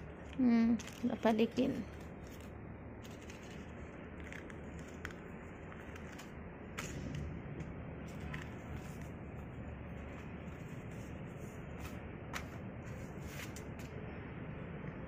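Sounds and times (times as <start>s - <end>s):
crackers crackling and rustling: 0.0s - 14.0s
low background noise: 0.0s - 15.0s.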